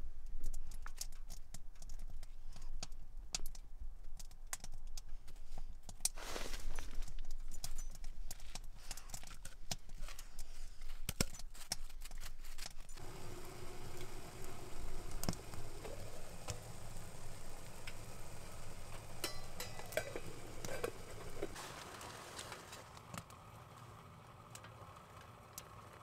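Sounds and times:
metal lid clinking on pot: 0:19.2 - 0:21.6.

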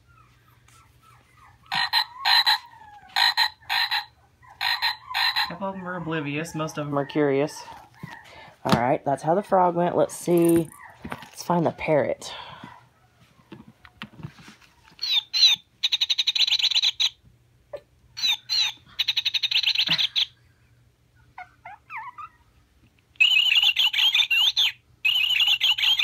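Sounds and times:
toy parrot chirps and squawks: 0:01.7 - 0:02.6, 0:03.2 - 0:05.6, 0:15.0 - 0:17.2, 0:18.2 - 0:20.3, 0:23.2 - 0:26.0.

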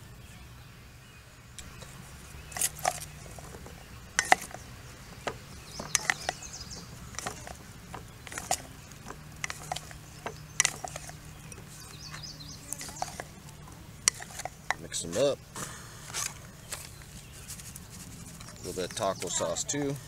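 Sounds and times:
wooden spatula knocking metal bowl: 0:02.6 - 0:04.6, 0:05.2 - 0:11.7.

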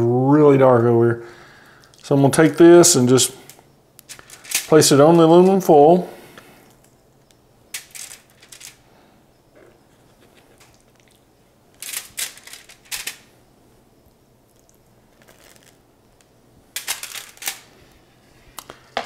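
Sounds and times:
aluminum foil crinkling: 0:04.1 - 0:05.6, 0:07.8 - 0:08.8, 0:09.9 - 0:13.3, 0:14.5 - 0:18.2.

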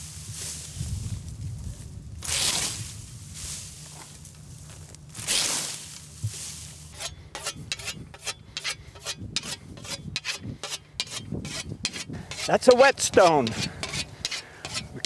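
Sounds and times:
scythe swishing through wheat: 0:00.0 - 0:00.8, 0:02.2 - 0:04.1, 0:05.1 - 0:15.0
whetstone scraping steel blade: 0:07.0 - 0:15.0.

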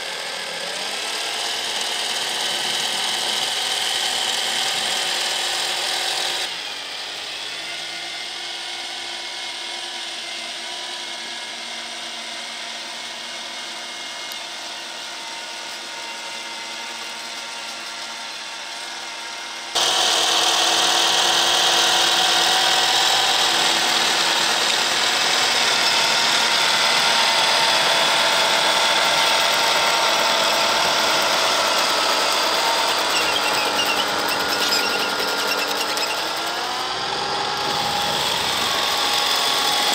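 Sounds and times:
electric motors whining: 0:00.0 - 0:39.9.

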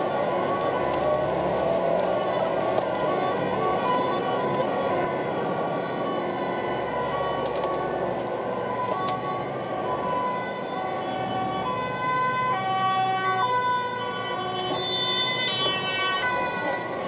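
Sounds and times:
truck road noise: 0:00.0 - 0:17.0
two-tone sirens: 0:00.0 - 0:17.0.

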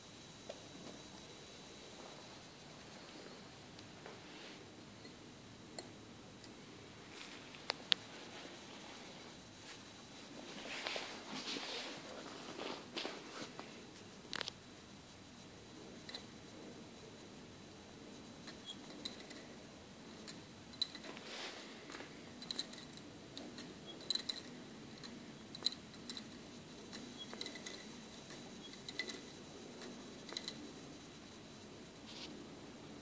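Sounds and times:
wire mechanism metallic clicks: 0:18.4 - 0:19.5, 0:21.9 - 0:30.7.

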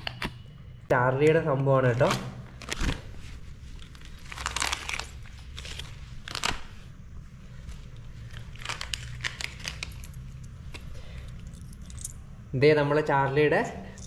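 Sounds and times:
plastic bag crinkling: 0:02.0 - 0:06.8, 0:07.5 - 0:10.3.

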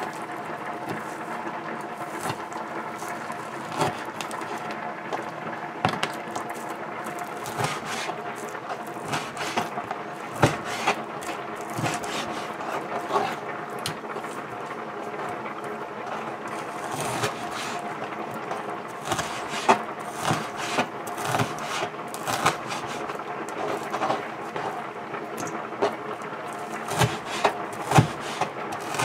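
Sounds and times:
steady background hum: 0:00.0 - 0:29.0
cleaver chopping on cutting board: 0:07.4 - 0:08.1, 0:09.0 - 0:09.7, 0:10.4 - 0:11.0, 0:11.8 - 0:12.5, 0:16.9 - 0:17.8, 0:19.0 - 0:23.0, 0:26.8 - 0:29.0.

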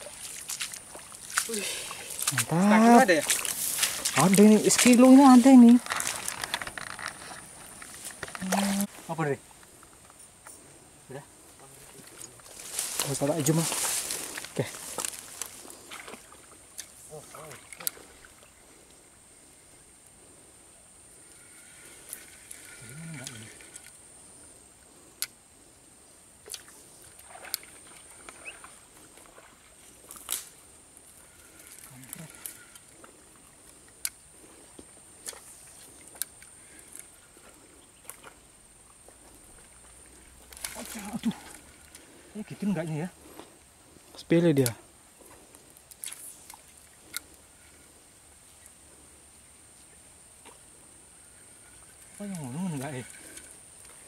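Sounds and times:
lure splashing on water: 0:00.0 - 0:08.9, 0:11.9 - 0:18.5, 0:26.4 - 0:42.4.

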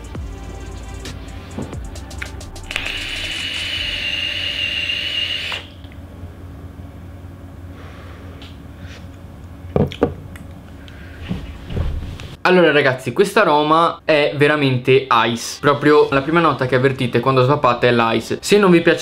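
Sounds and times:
e-cigarette hissing and sizzling: 0:02.2 - 0:05.5
faint exhale: 0:07.7 - 0:09.1.

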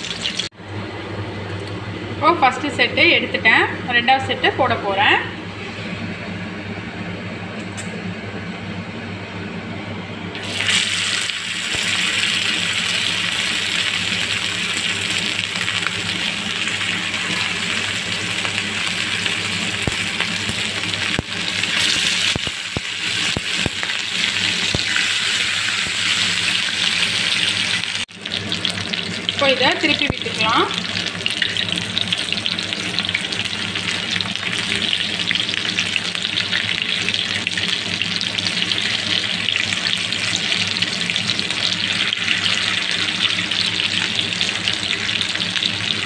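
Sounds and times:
fish sizzling in hot oil: 0:00.0 - 0:00.5, 0:10.4 - 0:46.0
oil bubbling: 0:00.0 - 0:00.6, 0:10.4 - 0:46.0.

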